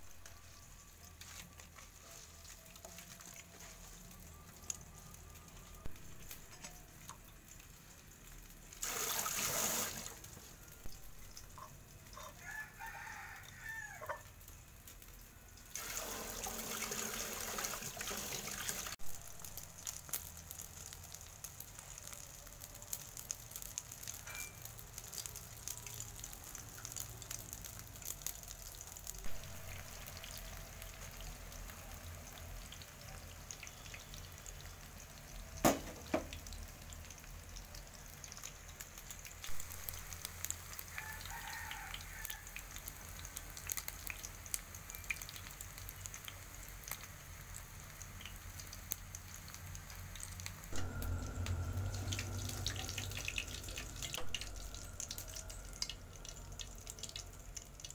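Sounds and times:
egg frying in oil: 0.0s - 57.9s
water running into colander: 8.8s - 10.3s, 15.7s - 19.0s
rooster crowing: 12.2s - 14.3s, 40.8s - 42.7s, 50.8s - 57.0s.

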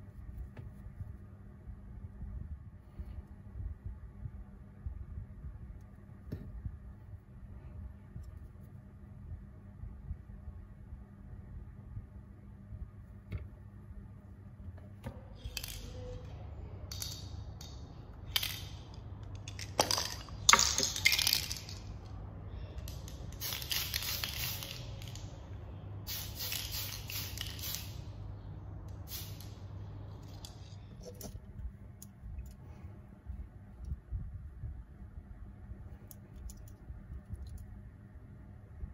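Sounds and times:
aerosol spray can hissing: 23.3s - 25.2s, 26.1s - 28.0s, 29.1s - 29.6s.

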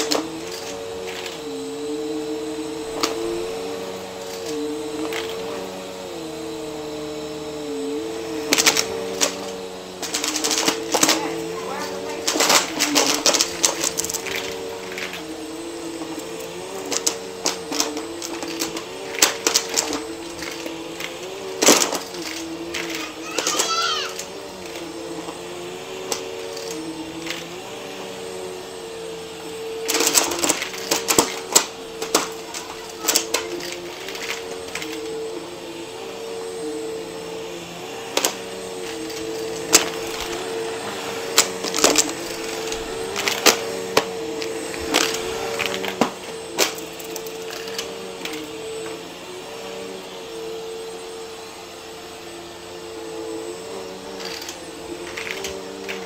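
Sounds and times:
coins rattling in vacuum: 0.0s - 1.5s, 8.2s - 25.2s, 25.9s - 28.4s, 29.8s - 35.3s, 37.8s - 48.6s, 52.9s - 56.0s
vacuum cleaner running: 0.0s - 56.0s.

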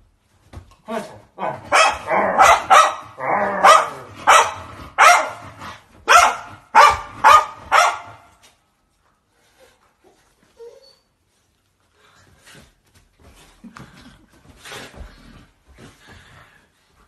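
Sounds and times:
dog barking: 1.5s - 5.4s, 6.1s - 8.3s.

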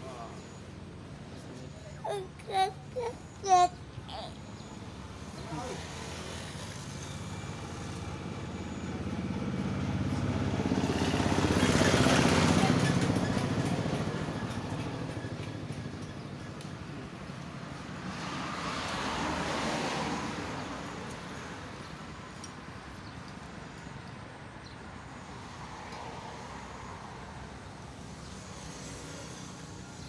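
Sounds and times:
vehicle passing: 0.0s - 16.3s, 17.0s - 22.1s
traffic background rumble: 0.0s - 30.0s.

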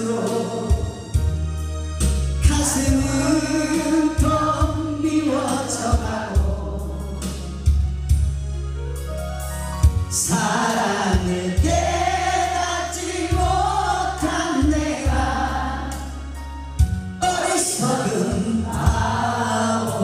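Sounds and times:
man singing into a microphone: 0.0s - 1.2s, 2.4s - 7.8s, 10.1s - 15.5s, 17.2s - 20.0s
karaoke backing track with bass beat: 0.0s - 20.0s.

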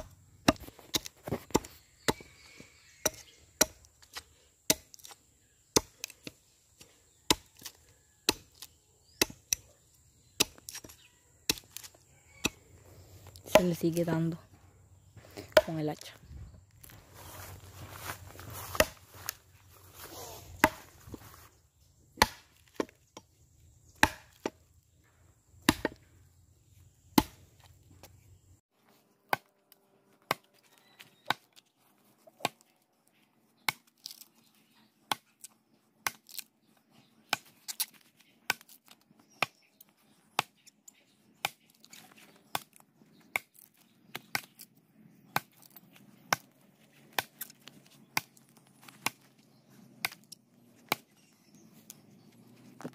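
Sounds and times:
axe chopping into a log: 0.0s - 2.3s, 3.0s - 5.2s, 7.3s - 9.6s, 10.4s - 10.9s, 15.4s - 15.9s, 18.7s - 19.0s, 20.6s - 20.9s, 22.2s - 23.0s, 23.9s - 24.6s, 25.6s - 26.1s, 27.1s - 27.4s, 47.1s - 47.5s, 50.0s - 50.2s.

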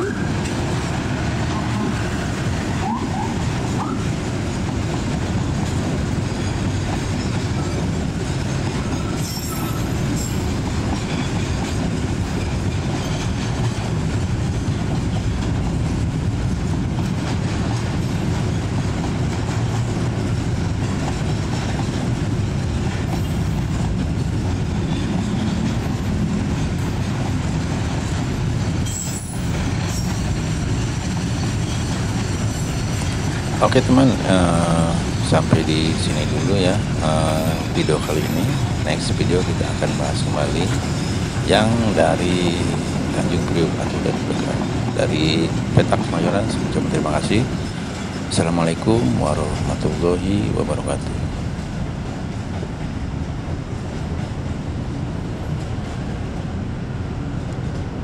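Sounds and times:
train wheels rumbling on rail: 0.0s - 58.0s
high wheel squeals: 8.8s - 11.6s, 24.7s - 25.8s, 28.8s - 34.1s.

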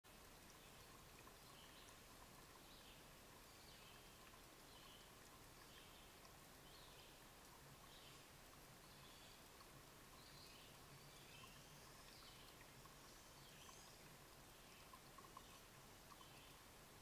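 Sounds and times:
faint hiss: 0.1s - 17.0s
distant songbird singing: 10.1s - 16.6s.

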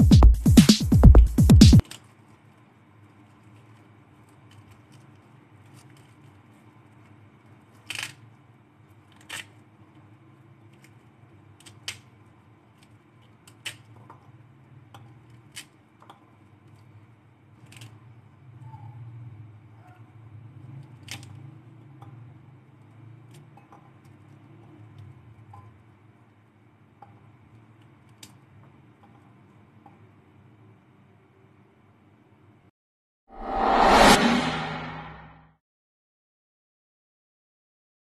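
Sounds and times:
low hum: 33.3s - 35.5s.

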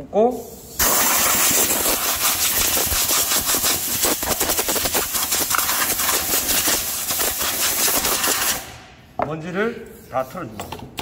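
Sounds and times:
compressed air blow gun hissing: 0.6s - 8.8s.

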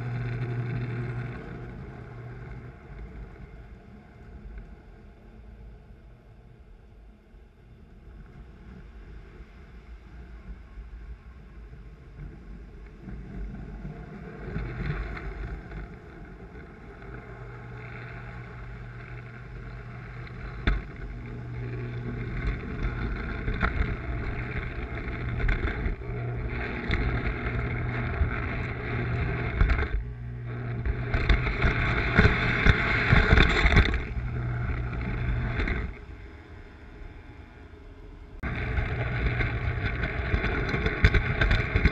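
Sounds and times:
toy train motor hum: 0.0s - 4.6s, 13.1s - 36.2s, 38.4s - 41.9s
wheels rumbling on rails: 0.0s - 41.9s.

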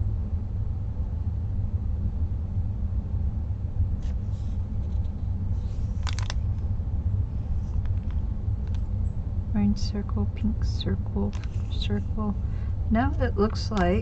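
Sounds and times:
steady low rumble: 0.0s - 14.0s
paper pages turning: 4.0s - 6.7s, 11.3s - 12.1s.

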